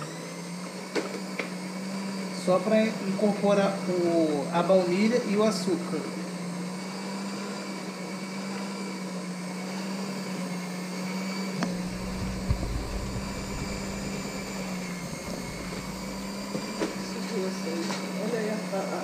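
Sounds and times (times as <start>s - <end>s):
electric hand mixer running: 0.0s - 19.0s
low rumble: 11.6s - 17.8s.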